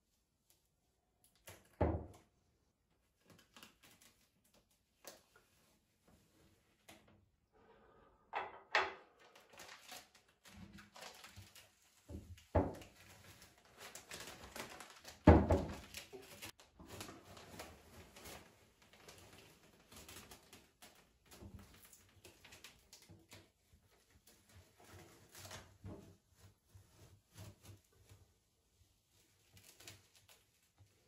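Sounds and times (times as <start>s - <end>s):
plastic film crackling and rustling: 3.1s - 5.7s, 9.2s - 31.0s.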